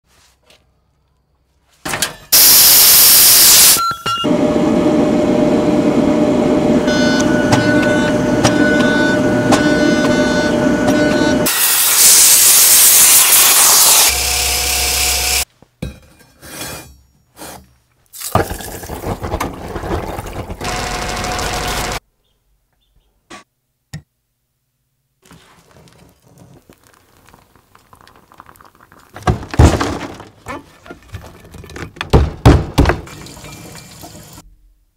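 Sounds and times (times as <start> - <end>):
cutting torch hissing: 2.4 - 15.5.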